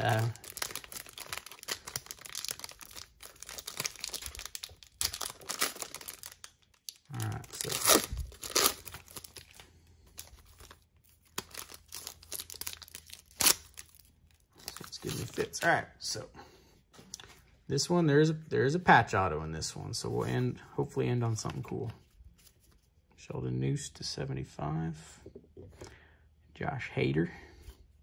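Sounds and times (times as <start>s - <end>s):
foil wrapper crinkling and tearing: 0.0s - 15.7s.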